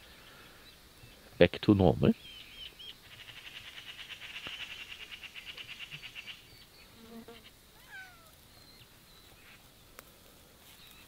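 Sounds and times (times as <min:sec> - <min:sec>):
cat meowing: 0:07.8 - 0:08.4.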